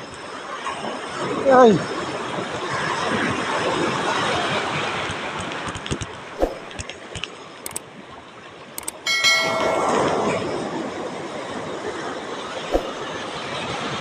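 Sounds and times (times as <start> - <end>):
wind and water rushing: 6.4 - 6.7, 12.6 - 14.0
light clicks: 8.8 - 9.0.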